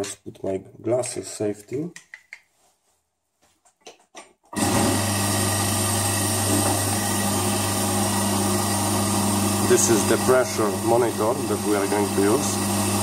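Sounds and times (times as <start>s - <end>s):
vacuum pump humming: 4.6s - 13.0s.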